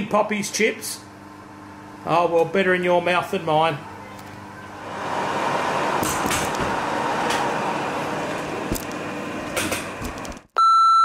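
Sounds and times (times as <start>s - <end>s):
metal lathe running: 4.7s - 10.2s
beep: 10.6s - 11.0s.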